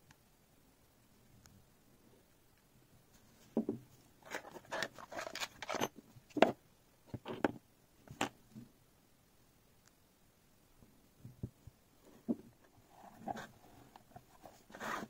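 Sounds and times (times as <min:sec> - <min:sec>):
plastic module handling rubs: 0:04.2 - 0:05.9.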